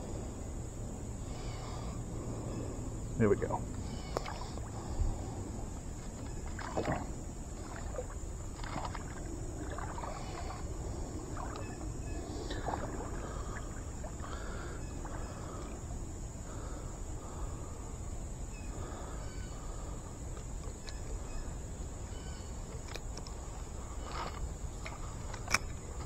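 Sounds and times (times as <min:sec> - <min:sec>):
steady high-pitched buzz: 0:00.0 - 0:26.0.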